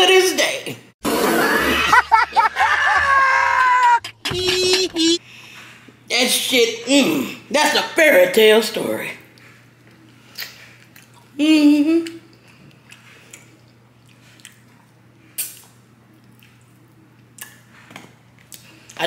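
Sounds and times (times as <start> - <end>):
mouth clicks and smacks eating: 9.8 - 11.4, 12.0 - 17.7
woman humming: 11.4 - 12.2.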